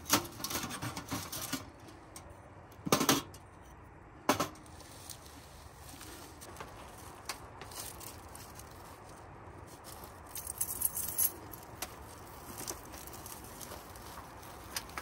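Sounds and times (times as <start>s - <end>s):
footsteps on pine needles: 4.6s - 10.8s, 11.4s - 15.0s.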